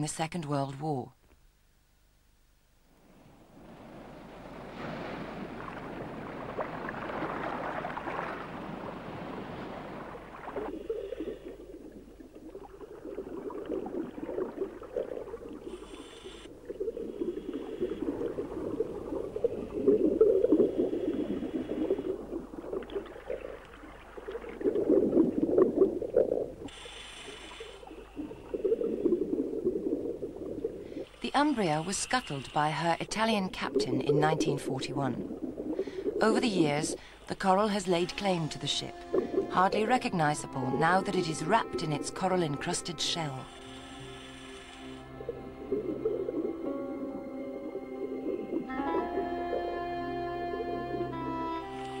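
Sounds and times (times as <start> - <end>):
bubbling exhalations underwater: 10.3 - 15.8, 16.6 - 26.8, 33.7 - 36.4
regulator inhalation hiss: 15.7 - 16.6, 26.7 - 29.2, 31.0 - 33.0, 43.4 - 45.1.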